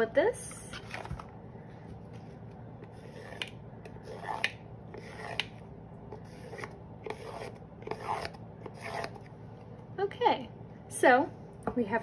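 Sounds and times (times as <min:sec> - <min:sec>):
crayon drawing on cardboard: 0:03.0 - 0:03.4.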